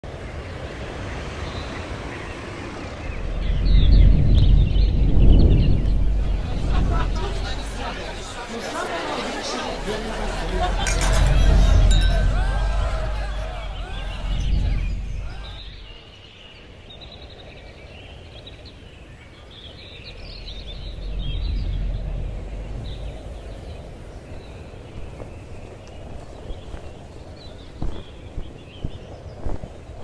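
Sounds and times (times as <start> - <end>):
birds chirping: 0.0 - 30.0
low rumble: 2.6 - 16.2, 19.9 - 25.4.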